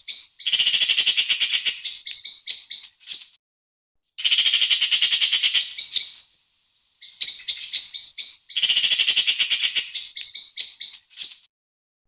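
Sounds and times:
magpie chattering: 0:00.0 - 0:03.2, 0:04.2 - 0:06.2, 0:07.0 - 0:11.4.

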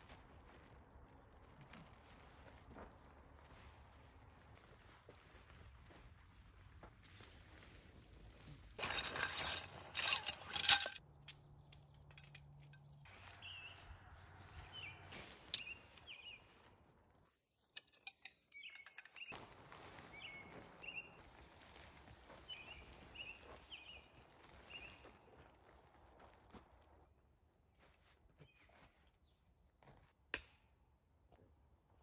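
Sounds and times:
forest ambience: 0:00.0 - 0:26.4
bird chirping: 0:11.2 - 0:16.6, 0:18.3 - 0:19.4.

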